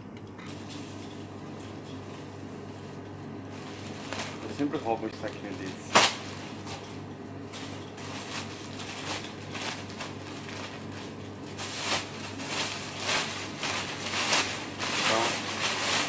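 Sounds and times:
steady low hum: 0.0 - 16.0
plastic bin bag rustling: 3.5 - 16.0.

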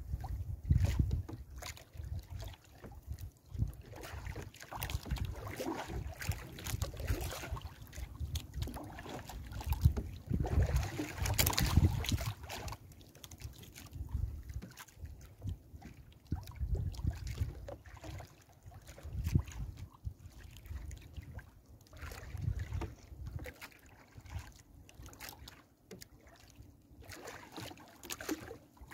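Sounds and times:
wind rumble on microphone: 0.0 - 12.8, 13.8 - 23.5.

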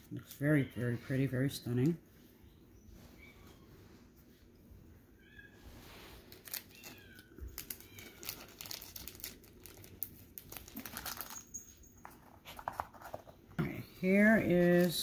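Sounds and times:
plastic bag crinkling: 6.3 - 11.6, 14.5 - 15.0.

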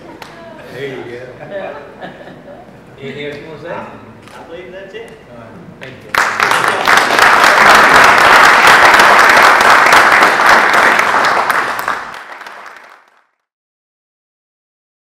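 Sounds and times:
audience applauding: 6.1 - 13.4.

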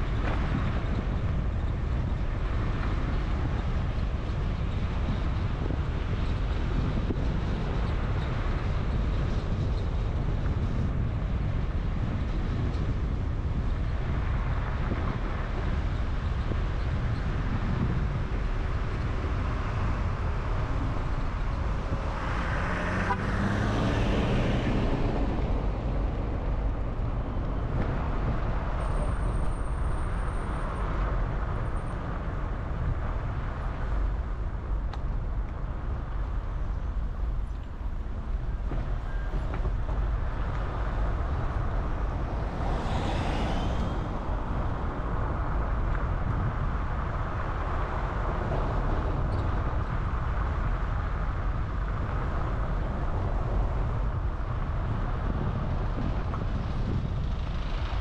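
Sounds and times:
car engine and tyre noise: 0.0 - 58.0
vehicle passing: 21.9 - 27.2, 40.8 - 45.7.

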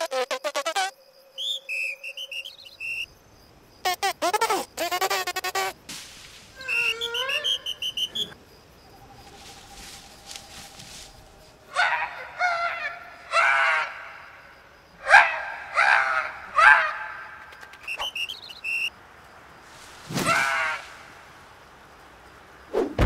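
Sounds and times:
squeaky cartoon insect calls: 0.0 - 3.1, 3.8 - 5.8, 6.6 - 8.4, 17.4 - 18.9.

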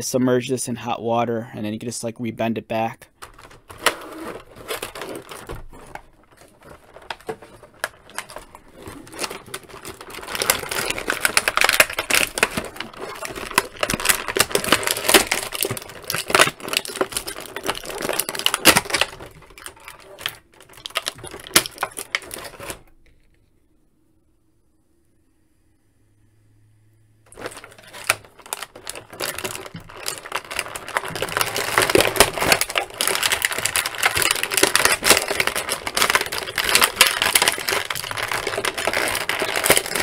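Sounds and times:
plastic tray crackling: 3.2 - 22.9, 27.3 - 40.0.

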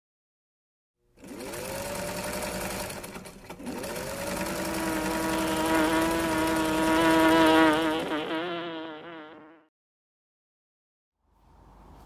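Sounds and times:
sewing machine motor whining: 1.2 - 8.2.

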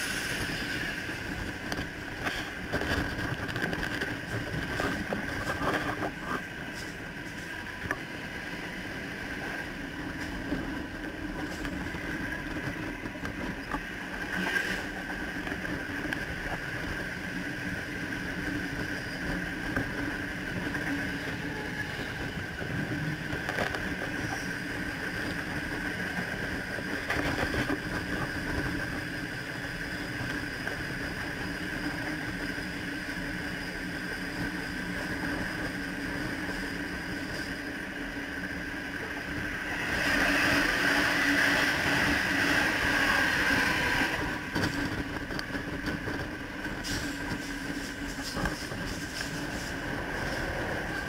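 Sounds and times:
electric train hum: 0.0 - 51.0
train wheels rumbling on rails: 0.0 - 51.0
rail clacks: 39.2 - 51.0.

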